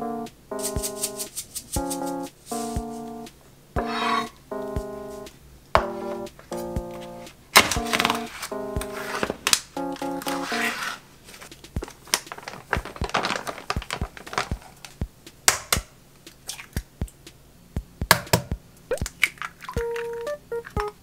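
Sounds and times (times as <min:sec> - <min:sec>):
powder shaken from bag: 0:00.6 - 0:02.8, 0:11.9 - 0:14.8
plastic film crinkling: 0:10.2 - 0:15.0.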